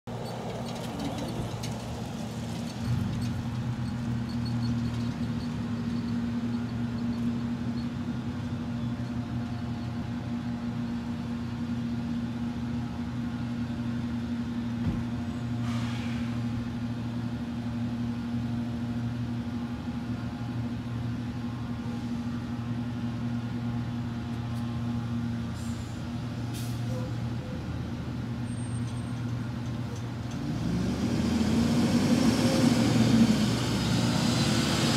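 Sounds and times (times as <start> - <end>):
brief falling hiss: 15.6 - 16.4.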